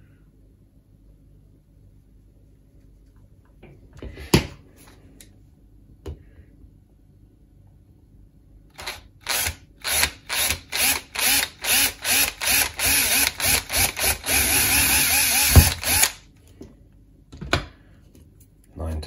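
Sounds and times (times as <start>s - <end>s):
cordless drill whining: 8.8s - 16.2s.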